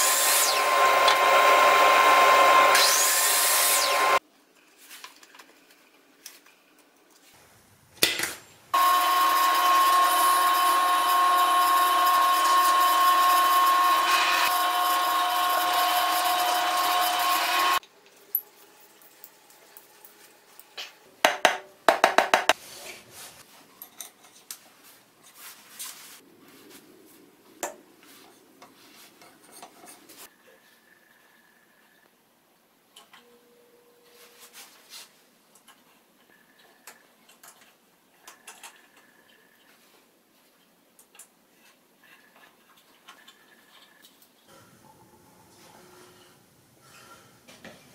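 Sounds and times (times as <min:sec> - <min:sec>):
drill press whining: 0:00.0 - 0:04.2, 0:08.8 - 0:17.8.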